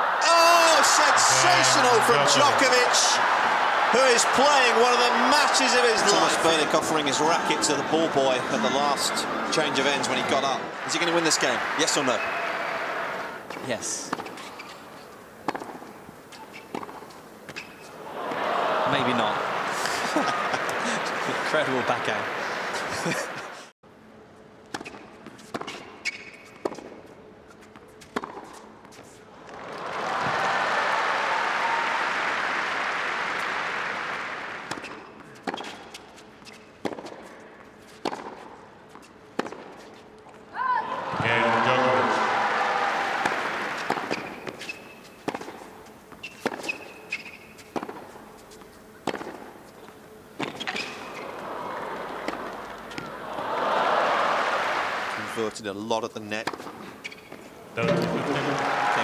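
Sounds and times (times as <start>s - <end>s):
crowd applause: 0.0s - 13.4s, 18.0s - 23.7s, 29.5s - 34.7s, 41.0s - 44.1s, 51.2s - 55.4s, 57.8s - 59.0s
crowd murmur: 0.9s - 3.2s, 57.8s - 58.8s
tennis ball strikes and bounces: 13.5s - 14.7s, 15.4s - 18.4s, 28.0s - 28.7s, 34.7s - 39.8s, 43.1s - 49.5s.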